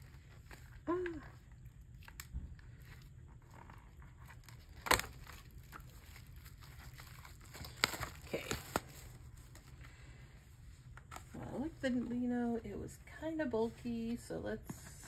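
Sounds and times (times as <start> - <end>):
packaging crinkling: 0.0 - 10.2
low steady hum: 0.0 - 15.0.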